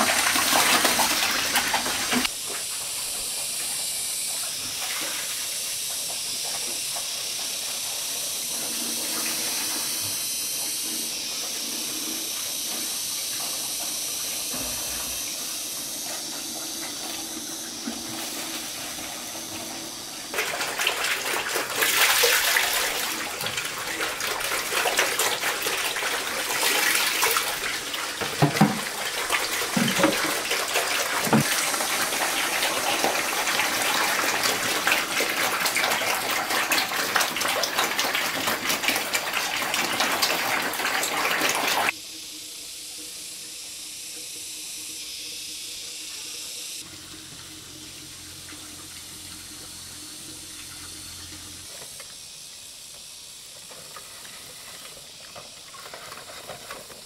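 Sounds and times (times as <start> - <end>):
water running and splashing: 0.0 - 42.0, 46.8 - 57.0.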